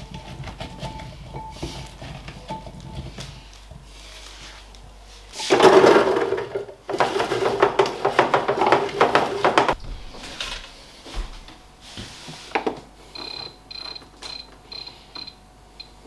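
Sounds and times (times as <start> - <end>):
kitchen appliance beeping: 13.1 - 16.0.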